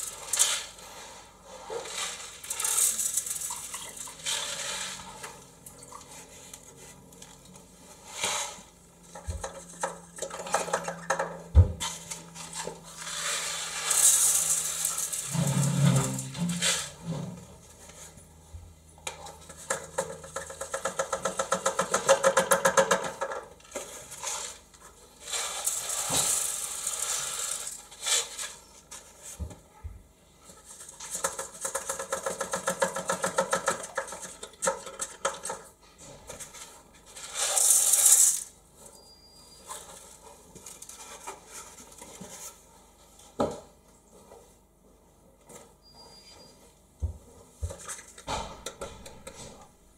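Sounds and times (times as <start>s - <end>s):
salt rattling through plastic funnel: 0.0s - 5.4s, 12.3s - 17.0s, 25.2s - 28.6s, 30.6s - 35.6s, 37.1s - 38.6s.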